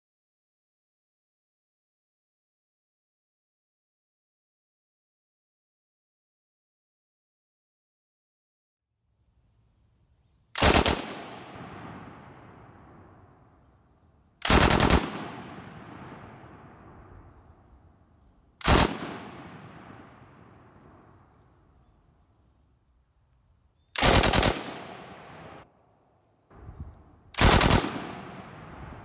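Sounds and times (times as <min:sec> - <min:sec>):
machine gun bursts with echo: 0:10.6 - 0:12.0, 0:14.4 - 0:16.4, 0:18.6 - 0:20.2, 0:24.0 - 0:25.6, 0:27.4 - 0:29.0.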